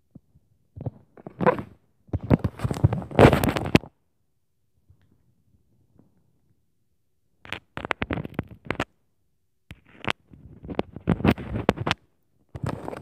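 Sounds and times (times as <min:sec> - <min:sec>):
microphone handling noise: 0:10.0 - 0:12.0.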